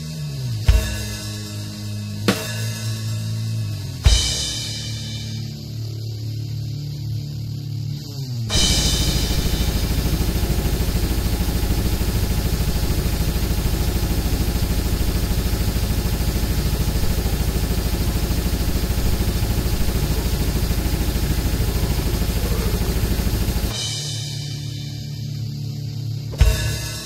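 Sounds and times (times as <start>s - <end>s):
death metal music: 0.0s - 27.0s
fast kick drum: 0.7s - 1.3s, 4.1s - 5.0s, 8.5s - 24.1s, 26.4s - 27.0s.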